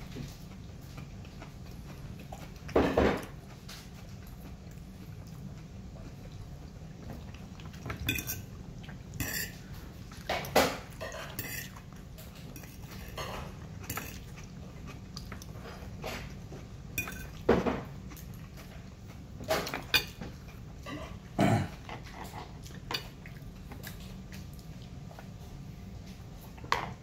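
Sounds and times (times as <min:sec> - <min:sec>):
fork scraping and clinking on plate: 0:08.0 - 0:08.5, 0:09.2 - 0:09.6, 0:10.5 - 0:11.8, 0:12.6 - 0:14.3, 0:17.0 - 0:17.4.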